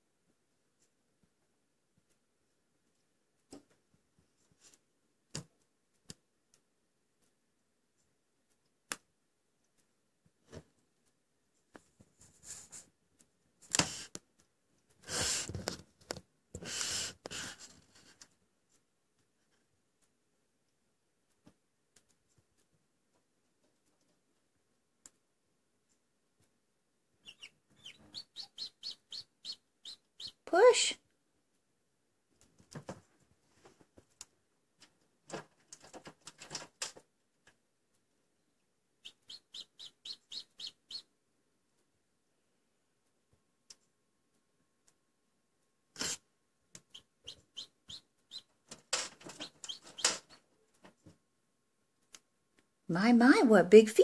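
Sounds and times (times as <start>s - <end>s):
chick pecking at eggshell: 27.2s - 30.7s, 39.0s - 41.1s, 45.9s - 51.0s.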